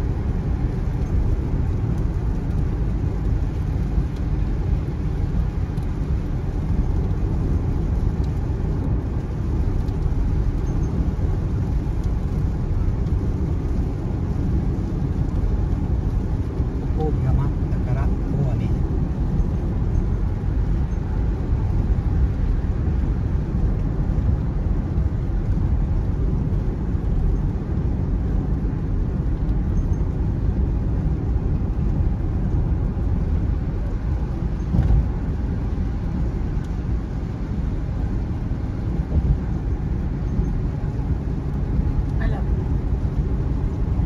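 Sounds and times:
car road noise on wet road: 0:00.0 - 0:44.0.

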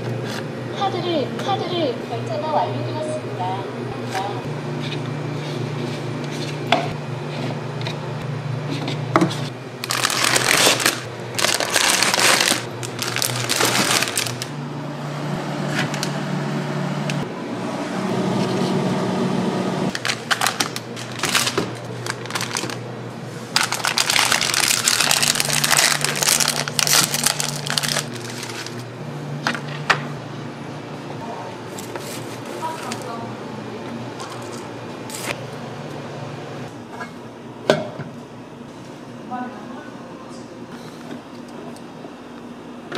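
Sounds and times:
paper and packaging rustling: 0:09.8 - 0:14.5, 0:19.9 - 0:22.8, 0:23.5 - 0:28.9.

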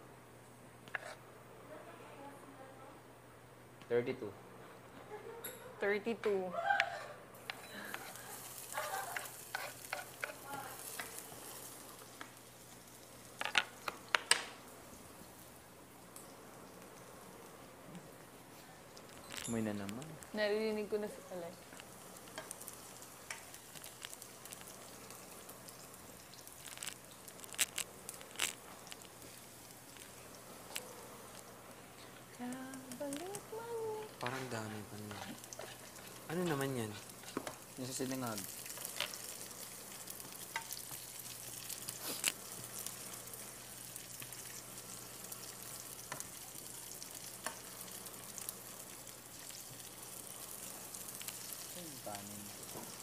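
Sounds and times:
spatula scraping pan: 0:00.9 - 0:01.2, 0:07.5 - 0:11.2, 0:34.2 - 0:37.6
food sizzling in pan: 0:06.3 - 0:53.0.

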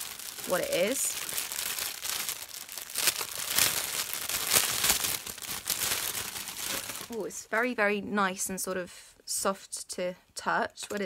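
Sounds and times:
plastic packet crinkling: 0:00.0 - 0:07.8.

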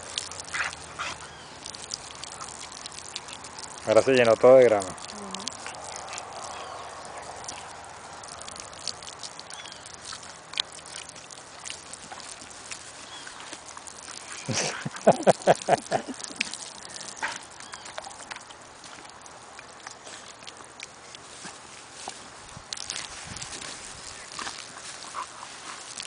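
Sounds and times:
dog rolling on dry grass: 0:05.6 - 0:26.0.

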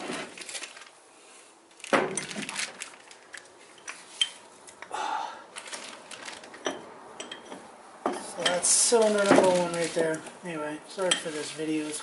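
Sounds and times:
metal engine parts clinking: 0:06.2 - 0:10.2.

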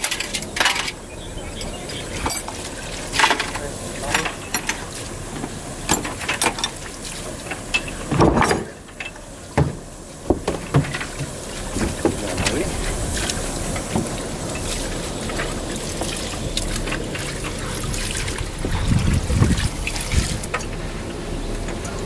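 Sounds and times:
metal parts clinking in basin: 0:02.2 - 0:02.6.

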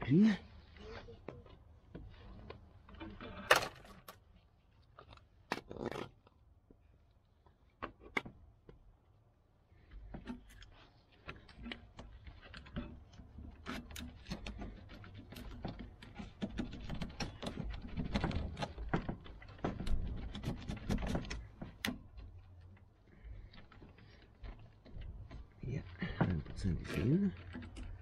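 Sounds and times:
electrical connector clicks and rattles: 0:10.2 - 0:28.0.

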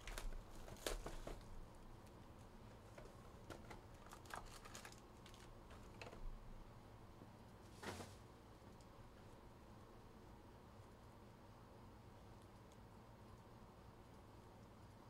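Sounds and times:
cardboard and foil pack handling: 0:00.0 - 0:01.5, 0:02.9 - 0:06.2
cellophane crinkling and tearing: 0:00.0 - 0:01.5, 0:03.0 - 0:06.2.

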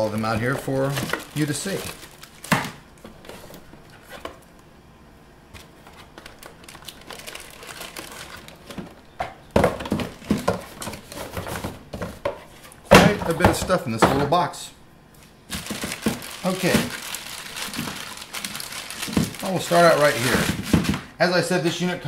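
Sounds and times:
plastic bags and bubble wrap crinkling: 0:00.0 - 0:04.6, 0:05.6 - 0:09.1, 0:09.7 - 0:11.8, 0:15.2 - 0:21.2.

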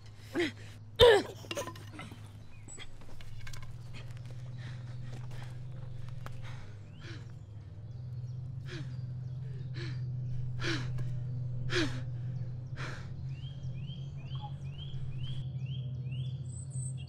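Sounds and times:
low steady drone: 0:00.0 - 0:17.0
heavy gasping breaths: 0:02.0 - 0:15.4.

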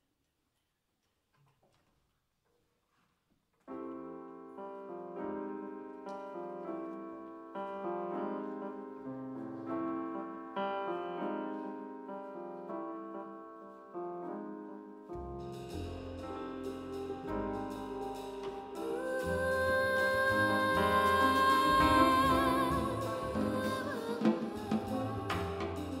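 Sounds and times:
slow piano chords: 0:03.7 - 0:26.0.

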